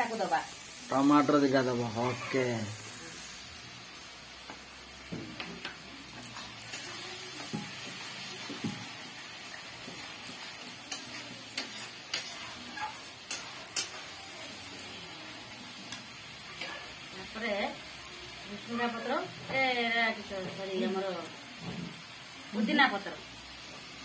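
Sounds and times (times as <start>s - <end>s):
curry sizzling in a pan: 0.0s - 24.0s
metal spatula scraping a pan: 6.3s - 14.8s.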